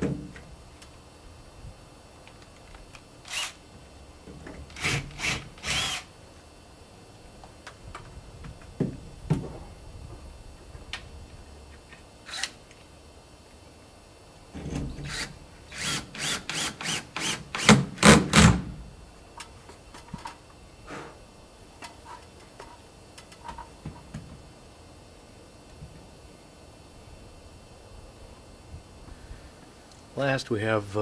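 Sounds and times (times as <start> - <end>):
drill driving screw: 3.2 - 3.6, 4.7 - 6.1, 12.2 - 12.6, 15.0 - 18.6.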